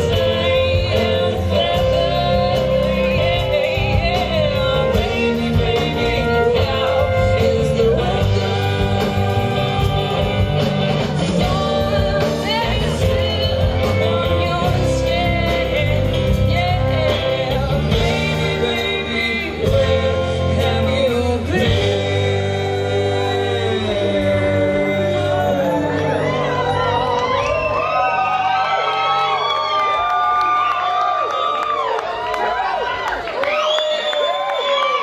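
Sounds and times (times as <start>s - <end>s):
person singing: 0.0s - 27.9s
electric guitars: 0.0s - 30.0s
bass: 0.0s - 35.0s
drums: 0.0s - 35.0s.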